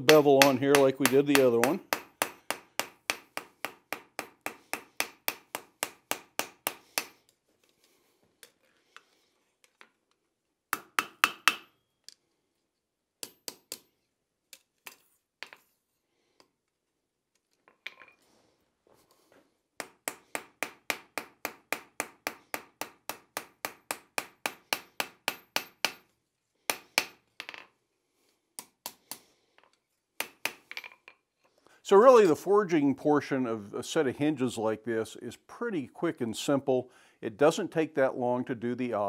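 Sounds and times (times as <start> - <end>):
hammer striking hot steel on anvil: 0.0 - 7.2.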